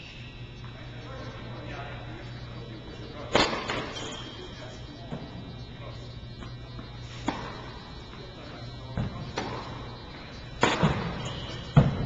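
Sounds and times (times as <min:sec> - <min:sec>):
steady low hum: 0:00.0 - 0:12.0
tennis ball bouncing: 0:06.4 - 0:08.2, 0:09.0 - 0:11.2
racket striking tennis ball: 0:10.6 - 0:11.2.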